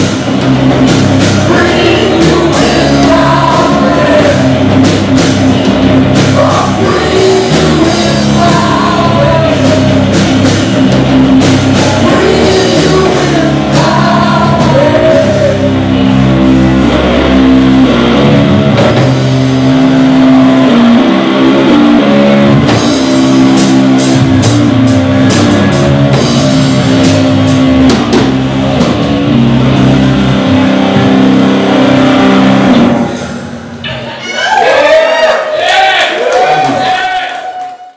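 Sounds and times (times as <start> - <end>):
distorted electric guitar: 0.0 - 34.6
drum kit with cymbal hits: 0.0 - 34.6
bass guitar: 0.0 - 37.9
person singing: 1.4 - 4.7, 6.2 - 10.5, 11.7 - 16.2.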